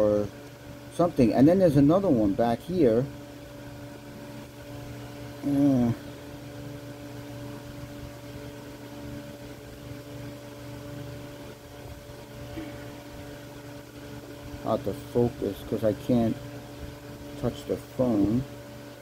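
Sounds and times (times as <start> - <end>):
steady low hum: 0.0 - 19.0
man making short vocal sound: 5.4 - 6.0.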